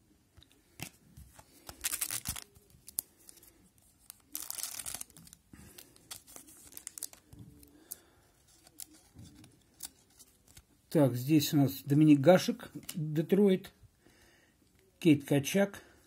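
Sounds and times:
cards clicking and rustling: 0:00.4 - 0:10.7
foil wrapper crinkling and tearing: 0:00.8 - 0:09.0.

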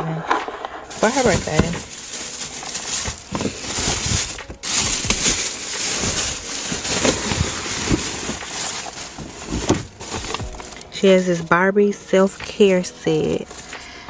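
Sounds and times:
plastic bags rustling: 0:00.8 - 0:10.9, 0:13.2 - 0:14.0.

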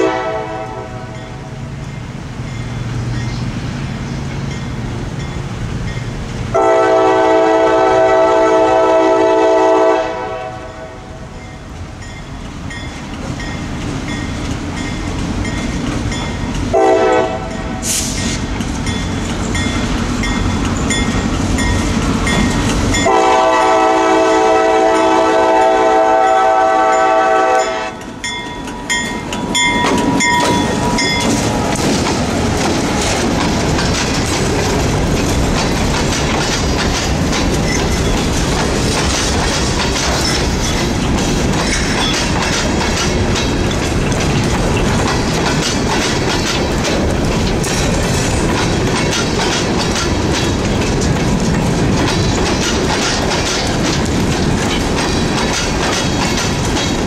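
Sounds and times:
locomotive air horn: 0:00.0 - 0:01.2, 0:06.5 - 0:11.1, 0:16.7 - 0:18.2, 0:23.0 - 0:28.0
train wheels clicking over rails: 0:11.2 - 0:57.0
locomotive engine rumble: 0:11.3 - 0:57.0.

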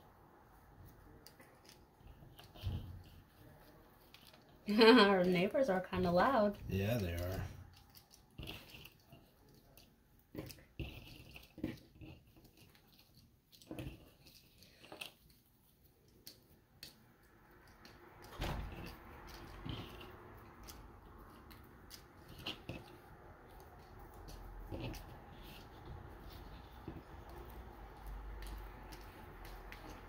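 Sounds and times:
faint background noise: 0:00.0 - 0:30.0.

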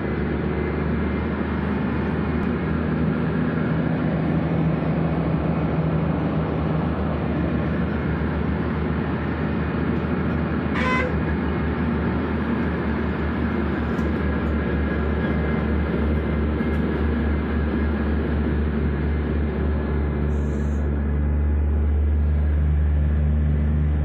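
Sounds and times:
truck diesel engine running: 0:00.0 - 0:24.0
horn toot: 0:10.7 - 0:11.3.

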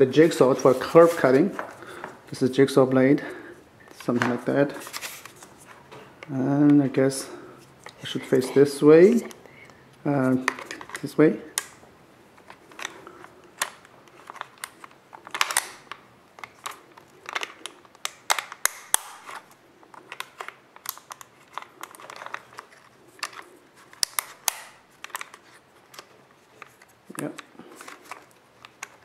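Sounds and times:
plastic and metal clicks and scrapes: 0:10.4 - 0:11.7, 0:12.4 - 0:29.0.

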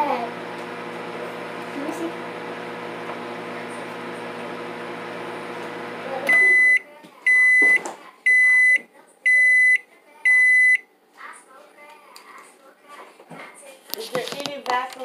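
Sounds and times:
microwave oven humming: 0:00.0 - 0:07.7
microwave beeps: 0:06.3 - 0:10.8.

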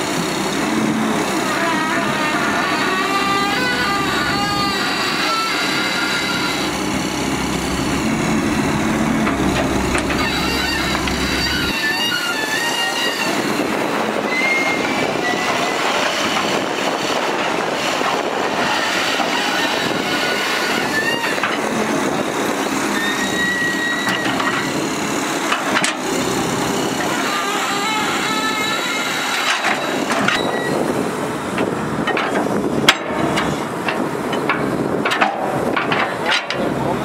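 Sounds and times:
excavator running: 0:00.0 - 0:37.0
short high squealing notes: 0:01.4 - 0:13.5.

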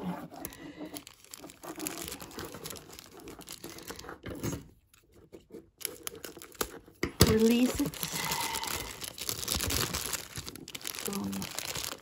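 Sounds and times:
plastic bag crinkling: 0:00.0 - 0:04.5, 0:05.8 - 0:12.0
scissors snipping plastic: 0:05.8 - 0:08.0.

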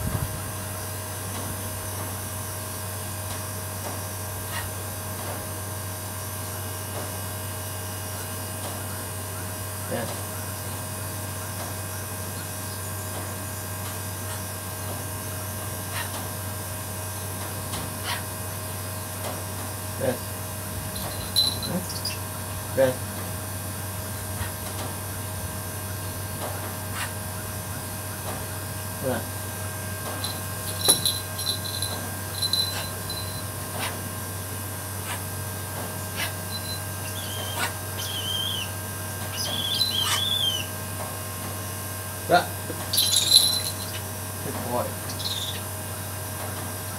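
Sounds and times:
electrical hum with buzz: 0:00.0 - 0:46.9
bird calling: 0:21.0 - 0:22.4, 0:36.2 - 0:40.8, 0:45.0 - 0:45.7.

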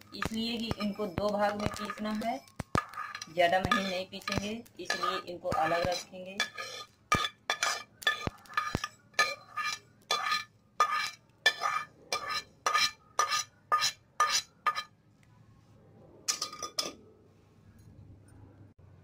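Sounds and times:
spoon clinking against pan: 0:00.1 - 0:14.9.

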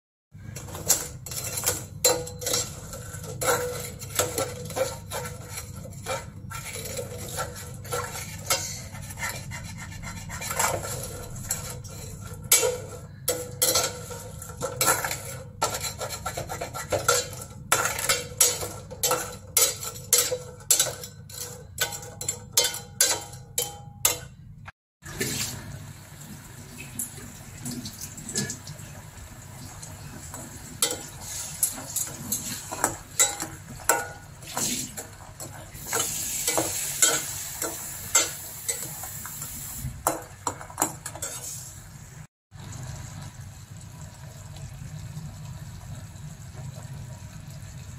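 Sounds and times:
steel utensil scraping a pan: 0:00.4 - 0:24.4, 0:30.2 - 0:41.8.

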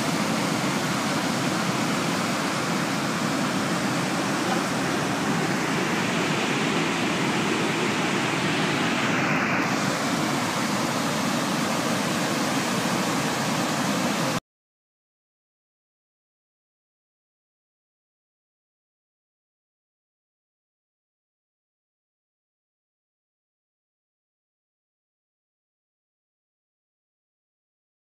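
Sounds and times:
water rushing through spillway: 0:00.0 - 0:14.4.

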